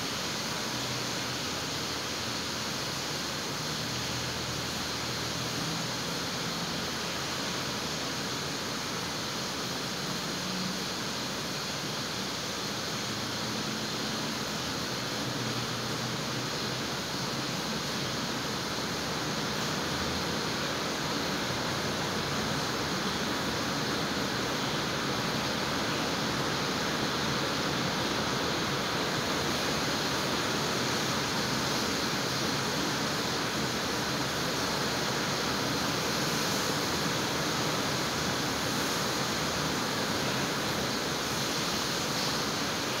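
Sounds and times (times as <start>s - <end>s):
heavy rain: 0.0s - 43.0s.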